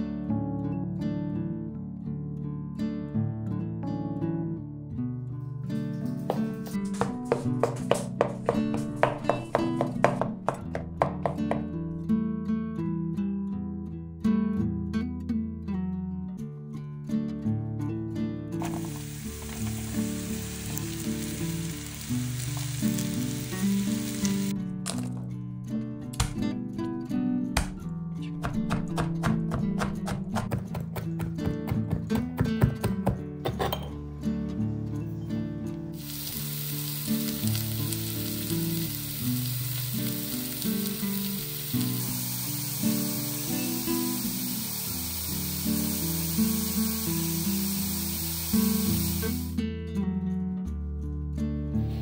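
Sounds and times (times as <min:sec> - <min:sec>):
acoustic guitar music: 0:00.0 - 0:52.0
mushrooms sizzling in oil: 0:06.4 - 0:11.6, 0:18.6 - 0:24.6, 0:36.0 - 0:49.6.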